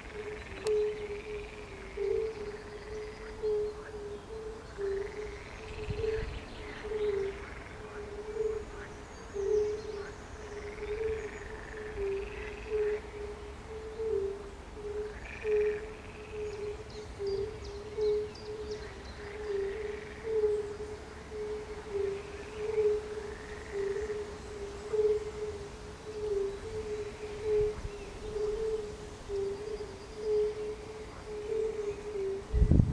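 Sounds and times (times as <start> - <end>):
frogs croaking: 0.0 - 32.8
toads chorus of low oop notes: 0.0 - 32.9.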